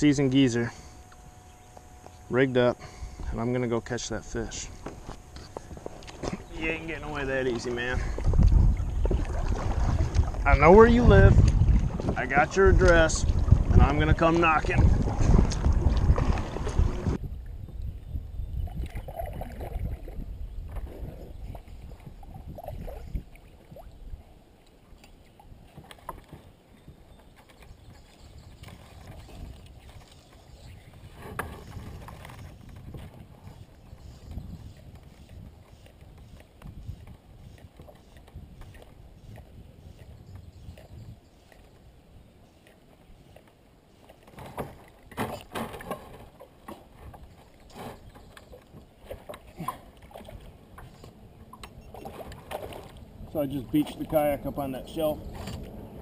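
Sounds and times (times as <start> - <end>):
water lapping against hull: 0.1 - 56.0
paddle splashing in water: 7.1 - 17.2, 42.5 - 56.0.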